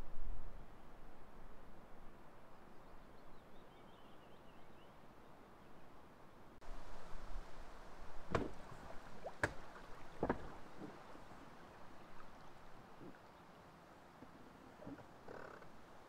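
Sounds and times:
paddle and water sounds: 6.6s - 16.0s
hollow knocks on canoe hull: 8.3s - 11.0s.

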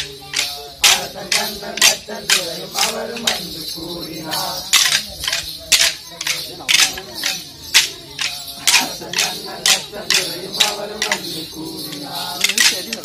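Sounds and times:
person singing: 0.0s - 5.4s, 8.2s - 13.0s
sticks clacking together: 0.0s - 13.0s.

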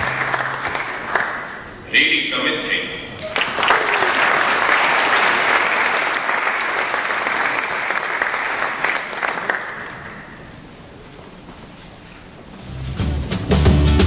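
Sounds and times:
audience applauding: 0.0s - 1.8s, 3.2s - 10.6s.

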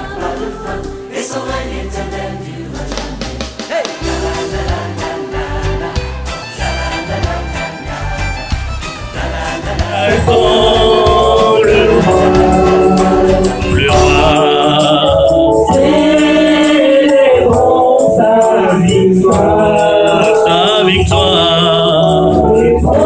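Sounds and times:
backing singers: 0.0s - 23.0s
rattling percussion beat: 9.8s - 23.0s.

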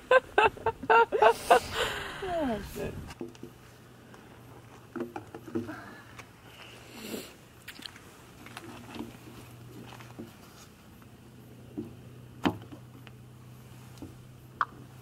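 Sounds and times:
plastic hose clicks and knocks: 3.2s - 3.6s, 4.9s - 5.7s.

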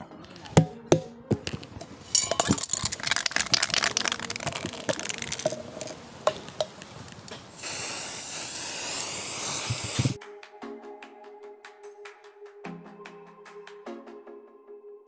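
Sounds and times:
spray can ball rattling: 1.4s - 10.2s
spray paint hissing: 2.4s - 10.2s.

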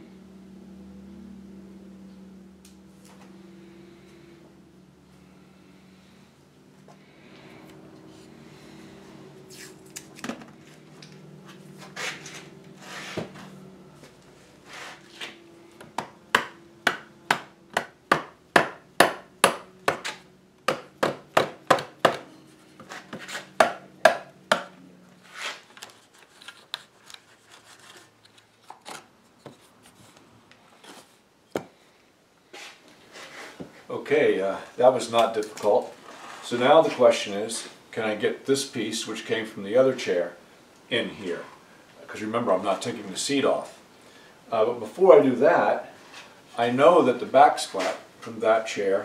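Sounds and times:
hammer knocking on wood: 16.0s - 20.1s.

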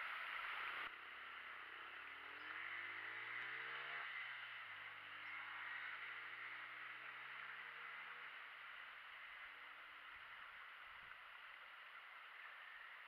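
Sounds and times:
steady hiss: 0.0s - 2.0s
faint distant engine: 0.0s - 13.0s.

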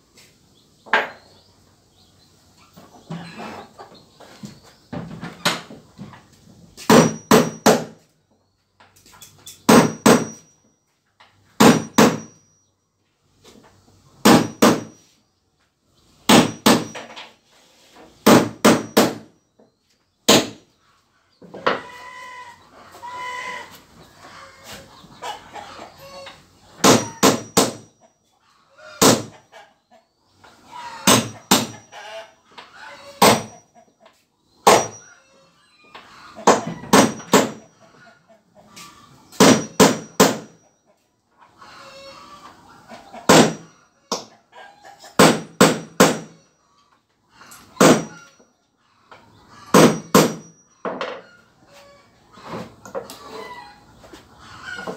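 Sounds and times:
hammer driving nails into wood: 6.8s - 8.0s, 9.7s - 10.4s, 11.6s - 12.3s, 14.2s - 14.9s, 16.3s - 17.1s, 18.2s - 19.3s, 20.3s - 20.6s, 26.8s - 27.8s, 29.0s - 29.3s, 31.1s - 31.8s, 36.5s - 37.6s, 39.4s - 40.5s, 45.2s - 46.4s, 47.8s - 48.2s, 49.8s - 50.5s
chicken calling: 20.6s - 27.2s, 28.4s - 34.2s, 40.9s - 43.3s.

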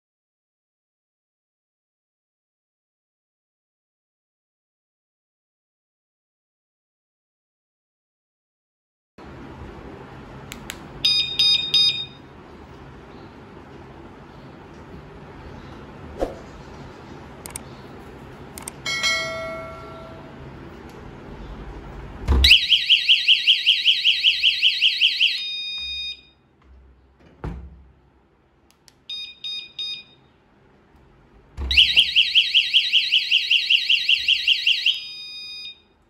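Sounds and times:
warbling alarm siren: 22.4s - 26.3s, 31.6s - 35.8s
short beeps: 25.4s - 26.3s.

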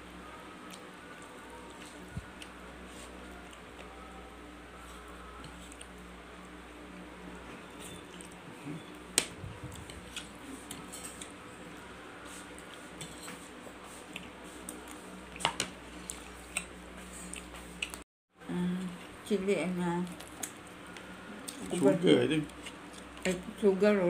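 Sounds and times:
knife and fork scraping plate: 13.0s - 13.4s.

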